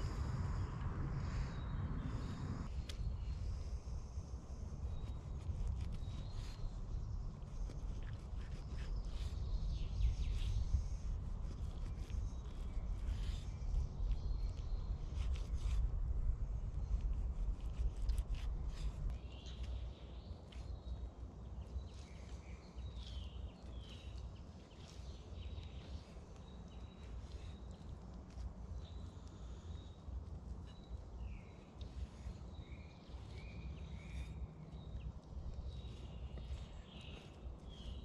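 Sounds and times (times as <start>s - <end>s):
low steady rumble: 0.0s - 19.9s
small birds chirping: 0.0s - 38.0s.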